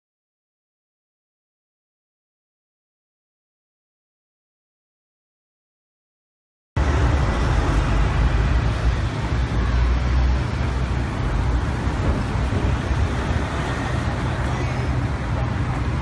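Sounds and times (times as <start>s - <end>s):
city street traffic rumble: 6.8s - 16.0s.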